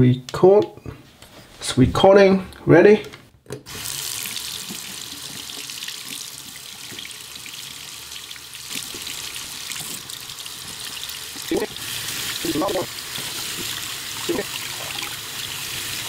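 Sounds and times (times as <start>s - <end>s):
faucet water splashing into basin: 3.7s - 16.0s.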